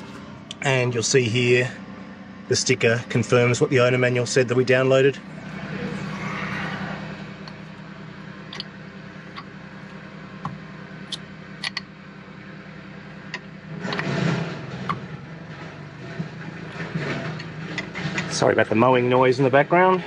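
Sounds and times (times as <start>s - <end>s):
lawn mower engine running: 0.0s - 20.0s.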